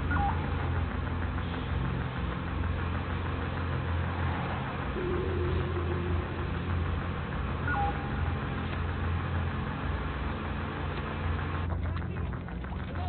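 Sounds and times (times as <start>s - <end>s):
constant hiss: 0.0s - 13.0s
two-note electronic beep: 7.6s - 8.4s.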